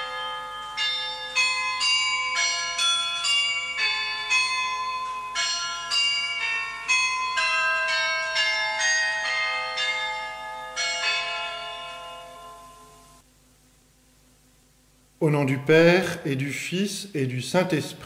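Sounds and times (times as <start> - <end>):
church bells ringing: 0.0 - 13.2.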